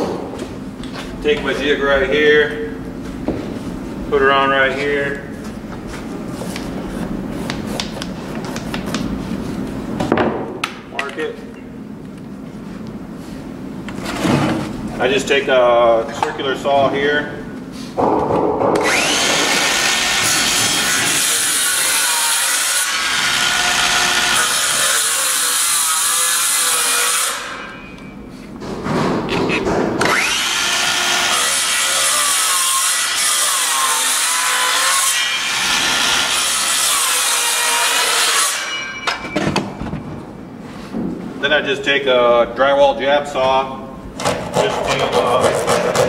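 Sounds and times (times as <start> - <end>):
circular saw cutting: 18.8 - 27.7, 30.0 - 39.0.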